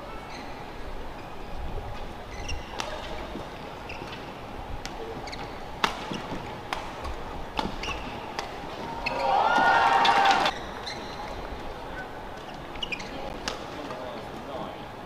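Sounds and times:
shoes squeaking on court: 0:01.2 - 0:09.4, 0:10.1 - 0:13.9.

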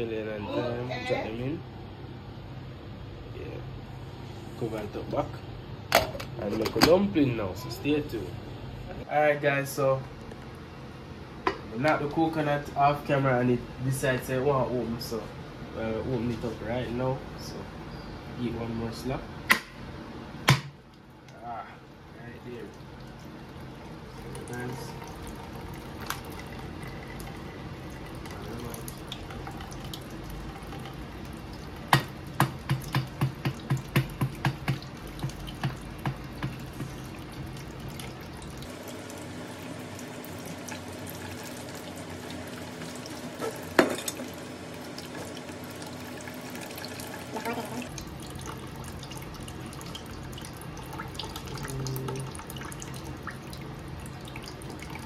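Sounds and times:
sharp knocks on coconut: 0:20.4 - 0:20.8
water dripping into plastic container: 0:24.2 - 0:38.7.

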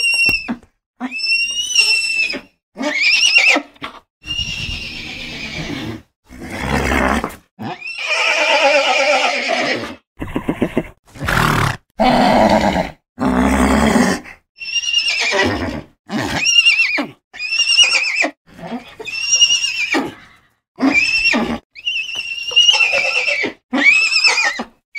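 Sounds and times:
horses neighing: 0:04.4 - 0:13.9.

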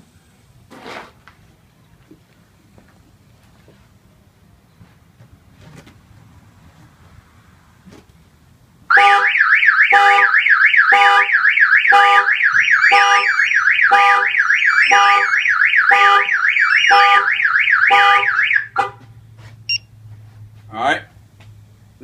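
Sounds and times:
car alarm siren warbling: 0:08.9 - 0:19.0.

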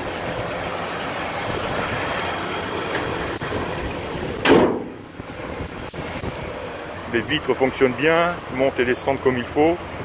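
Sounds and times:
car engine idling: 0:00.0 - 0:10.0
car hood slamming shut: 0:04.4 - 0:05.1.

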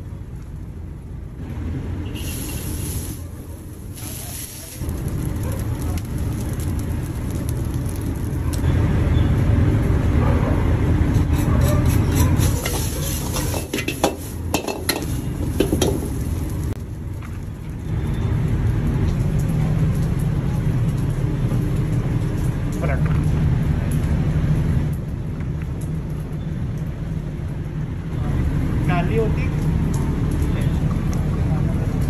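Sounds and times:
wok burner roar: 0:01.2 - 0:17.2, 0:17.8 - 0:32.0
metal ladle clattering against wok: 0:11.9 - 0:16.1.

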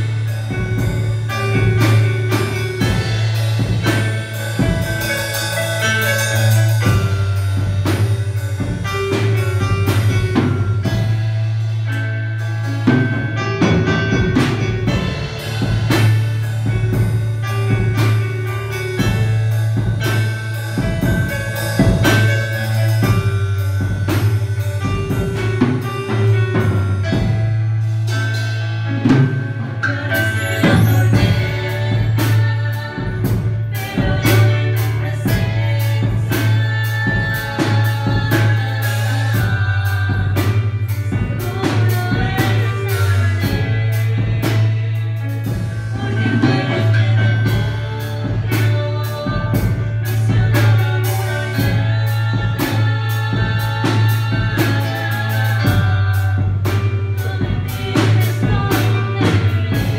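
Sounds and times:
drum beat: 0:00.0 - 0:11.2, 0:12.9 - 0:27.6
bass line: 0:00.0 - 0:59.9
electronic keyboard: 0:00.0 - 0:59.9
woman singing: 0:29.8 - 0:59.9.

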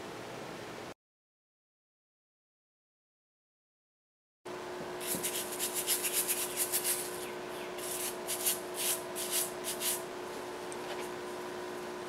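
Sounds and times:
hands rubbing ginger root: 0:05.0 - 0:10.0.

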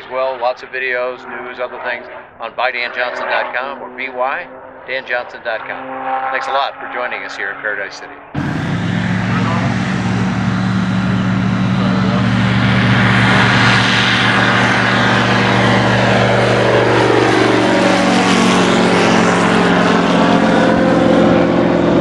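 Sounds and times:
light aircraft taking off: 0:08.1 - 0:22.0.

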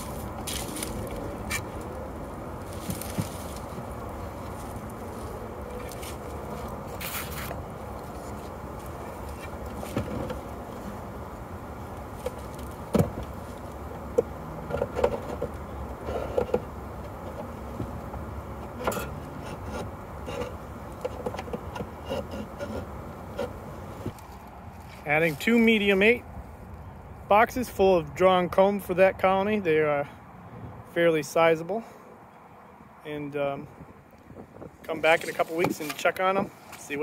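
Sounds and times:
wooden hive equipment knocking: 0:12.2 - 0:15.7.

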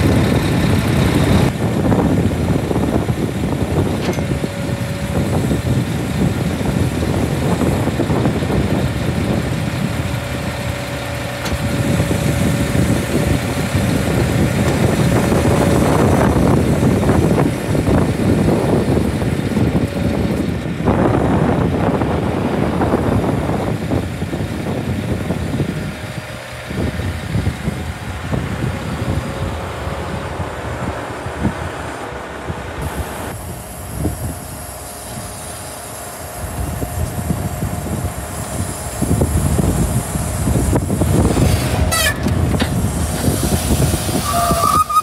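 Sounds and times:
diesel engine running: 0:00.0 - 0:45.0
hydraulic crane low rumble: 0:00.0 - 0:45.0
faint steady whine: 0:32.0 - 0:44.4.

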